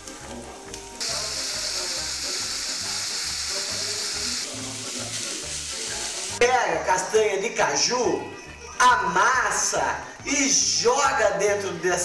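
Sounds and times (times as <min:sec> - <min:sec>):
meat sizzling in a pan: 0:00.0 - 0:06.4.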